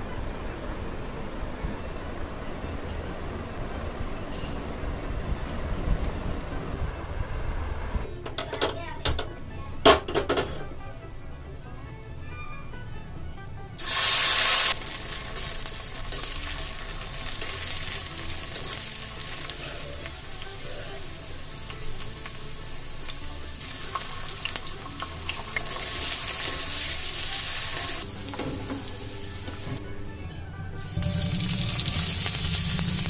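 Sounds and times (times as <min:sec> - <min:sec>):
vegetables sizzling in hot oil: 0:13.8 - 0:29.8, 0:30.8 - 0:33.0.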